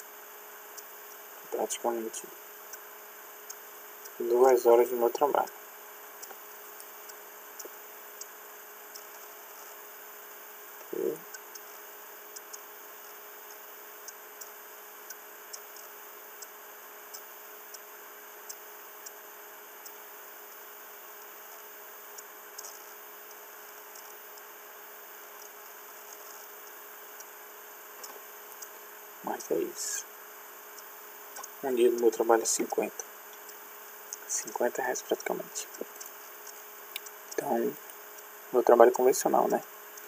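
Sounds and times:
electrical hum and hiss: 0.0s - 40.0s
light sharp ticks: 6.2s - 9.7s, 10.8s - 19.2s, 25.4s - 27.4s, 28.0s - 28.8s, 30.7s - 40.0s.

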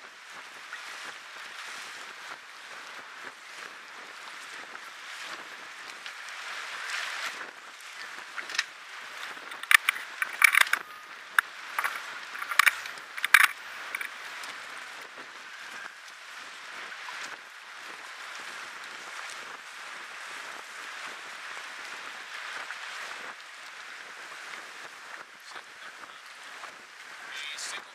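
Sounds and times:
waves washing: 0.0s - 27.9s
wind: 0.0s - 27.9s
sharp loud clicks and knocks: 9.5s - 10.8s, 11.8s - 14.1s.

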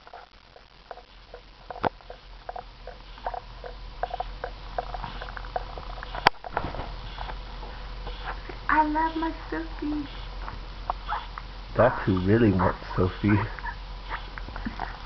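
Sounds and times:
rubber squeaky toy squeaks: 11.1s - 11.3s.

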